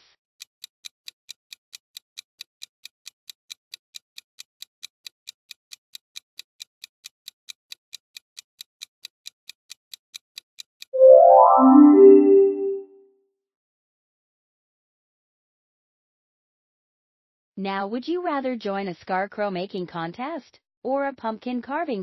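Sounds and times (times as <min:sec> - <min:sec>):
countdown timer ticking: 0:11.0 - 0:12.8.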